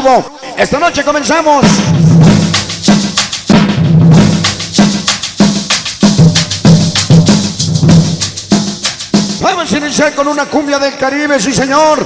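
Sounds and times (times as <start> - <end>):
latin dance music over sound system: 0.0 - 12.0.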